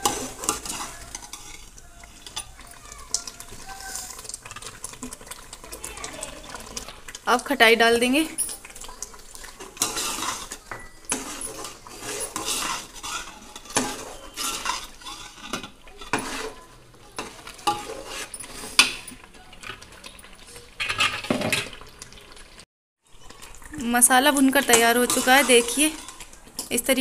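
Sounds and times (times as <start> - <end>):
metal ladle scraping a pot: 0.0 - 7.2, 8.0 - 21.9, 24.4 - 27.0
ladle clinking against pot: 8.4 - 16.6, 17.2 - 21.8.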